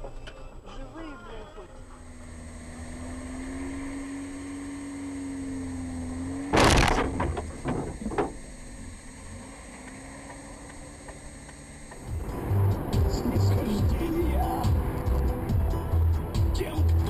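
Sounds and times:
car engine humming: 0.0s - 17.0s
loud collision bang: 6.5s - 8.5s
small knocks: 6.5s - 8.6s.

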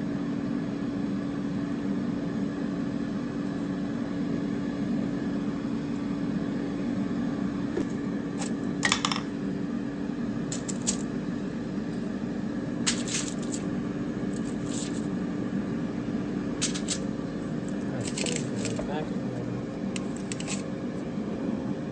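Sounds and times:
steady low hum: 0.0s - 21.9s.

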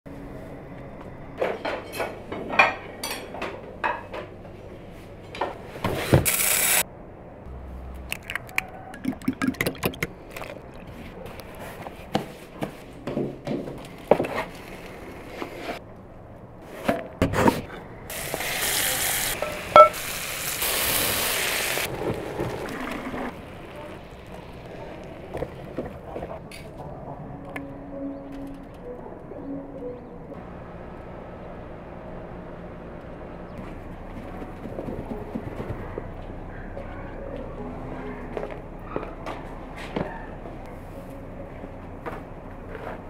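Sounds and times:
food sizzling on hot iron plate: 18.1s - 21.9s
utensils tapping and clinking: 19.4s - 20.0s.

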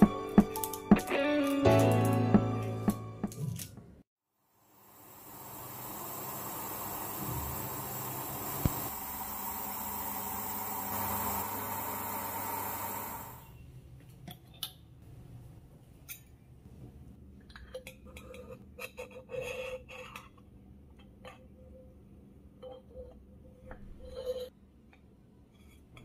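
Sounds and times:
steam hissing from a steamer: 4.6s - 13.2s.

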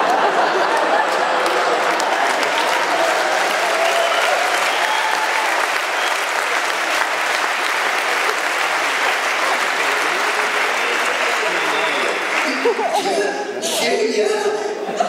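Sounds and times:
audience applauding: 0.0s - 13.3s
faint voices: 6.2s - 15.0s.

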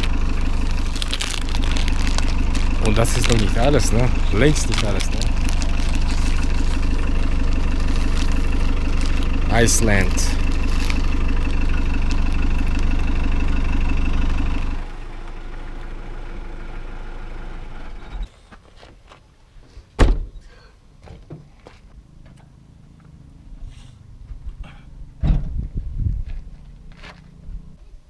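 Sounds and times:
car engine running: 0.0s - 18.3s, 22.0s - 27.8s
loud thump: 25.2s - 25.6s.

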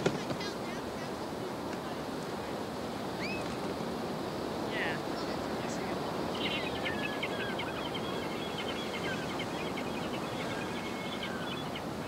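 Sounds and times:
surf: 0.0s - 12.0s.

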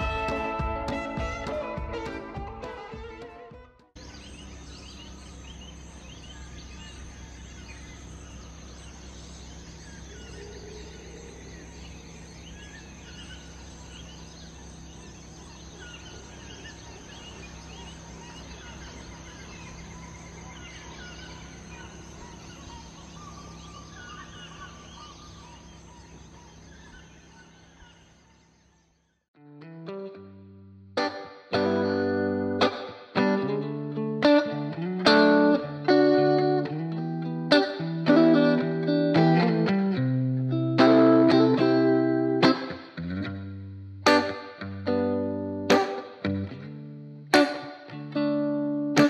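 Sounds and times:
birds chirping and calling: 4.0s - 29.2s
insects humming: 4.0s - 29.2s, 31.6s - 43.0s.

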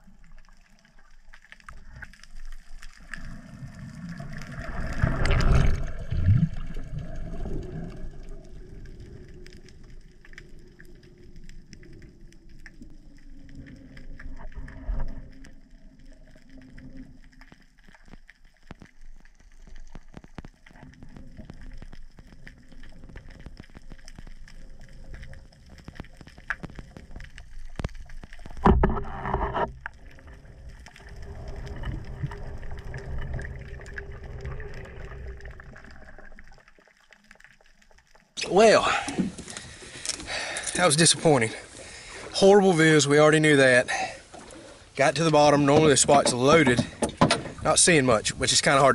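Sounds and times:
low underwater rumble: 0.0s - 38.3s
crackling clicks: 0.0s - 48.9s.

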